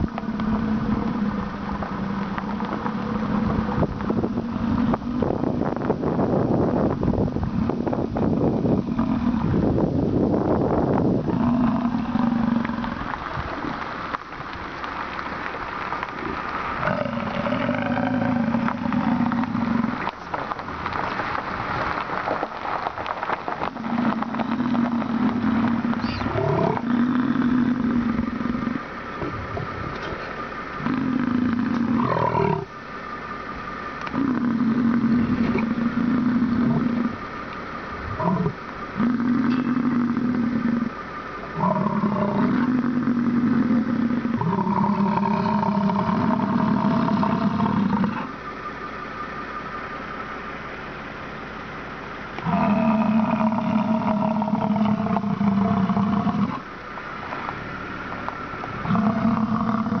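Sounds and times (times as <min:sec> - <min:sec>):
bison grunting: 0:00.0 - 0:05.7, 0:07.5 - 0:09.8, 0:11.0 - 0:13.4, 0:16.8 - 0:21.2, 0:23.6 - 0:32.7, 0:34.0 - 0:37.3, 0:38.0 - 0:41.0, 0:41.6 - 0:48.4, 0:52.4 - 0:56.7, 0:58.8 - 1:00.0.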